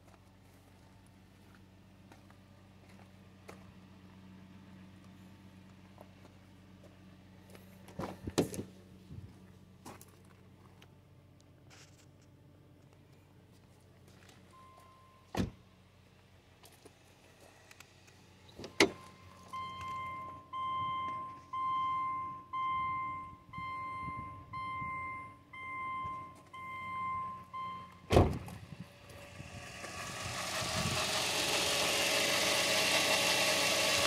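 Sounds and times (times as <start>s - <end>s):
car engine running: 0.2s - 14.4s, 26.0s - 34.0s
dashboard warning chime: 14.5s - 15.3s, 18.7s - 28.1s
loud thump: 28.1s - 28.6s.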